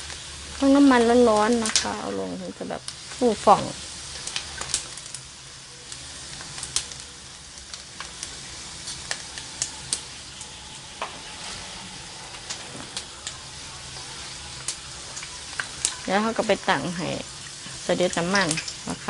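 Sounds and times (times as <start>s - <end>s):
pork skin deep-frying in oil: 0.0s - 19.0s
sharp pops of frying: 0.0s - 19.0s.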